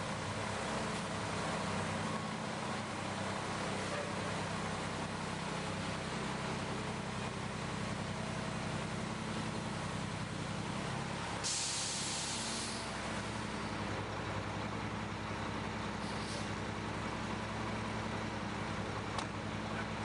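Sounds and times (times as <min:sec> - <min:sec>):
sudden sharp hiss: 0:11.4 - 0:12.9.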